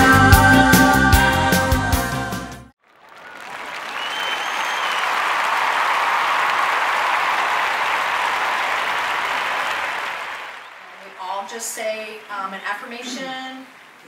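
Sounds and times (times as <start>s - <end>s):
audience applause: 2.8s - 11.2s.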